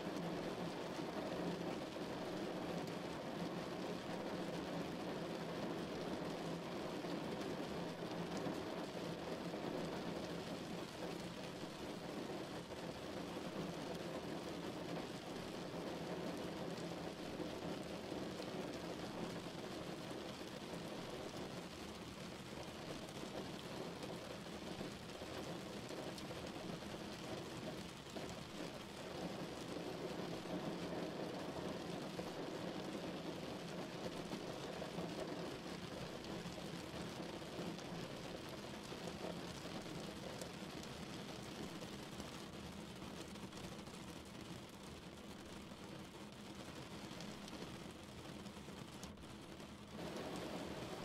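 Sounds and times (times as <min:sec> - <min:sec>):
steady rain falling: 0:00.0 - 0:51.0
raindrop ticks: 0:22.8 - 0:51.0.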